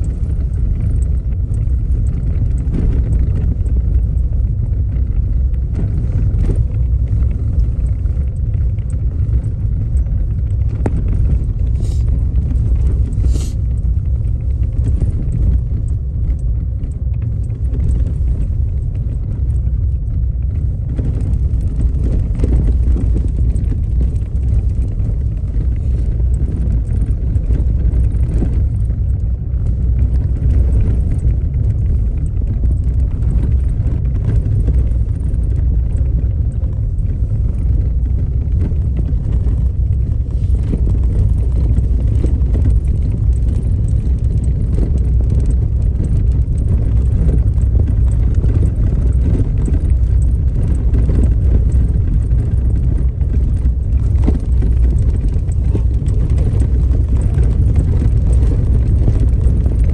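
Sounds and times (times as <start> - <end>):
vehicle driving on gravel: 0.0 - 59.9.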